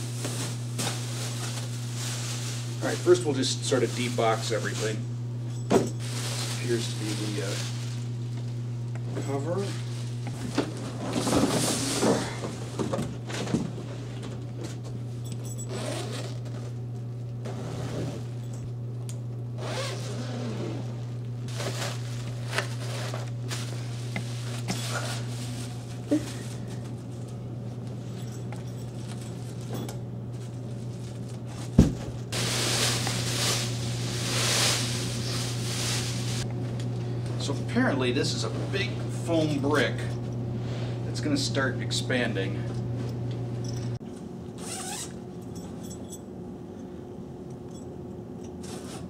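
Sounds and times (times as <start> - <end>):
plastic wrapping crinkling: 0.0 - 5.0, 6.0 - 8.6, 21.5 - 26.9, 28.9 - 36.5
steady low hum: 0.0 - 49.0
zipper: 15.6 - 16.5, 17.5 - 18.3, 19.6 - 21.0, 44.6 - 45.2
fabric rustling: 32.3 - 36.4.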